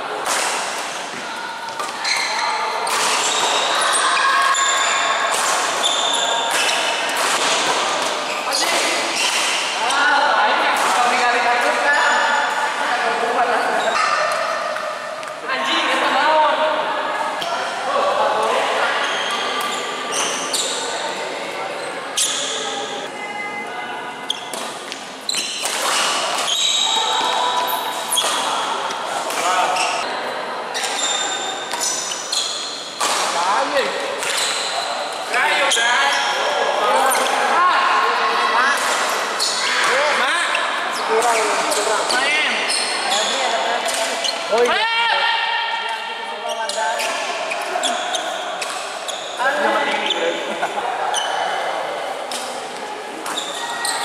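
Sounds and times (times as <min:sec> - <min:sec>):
rackets hitting shuttlecock: 0:00.2 - 0:03.9, 0:04.8 - 0:10.0, 0:24.5 - 0:30.0, 0:31.7 - 0:34.7, 0:38.8 - 0:42.0
shoes squeaking on court floor: 0:00.9 - 0:10.1, 0:19.0 - 0:21.1, 0:21.8 - 0:23.1, 0:24.1 - 0:30.1, 0:30.8 - 0:37.4, 0:38.9 - 0:44.8, 0:46.4 - 0:50.5, 0:53.2 - 0:54.0.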